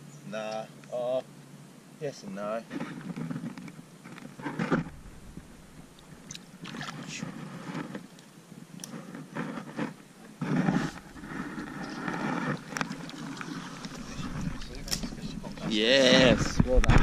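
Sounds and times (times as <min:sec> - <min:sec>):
water sloshing and splashing: 0:04.7 - 0:08.0, 0:10.8 - 0:17.0.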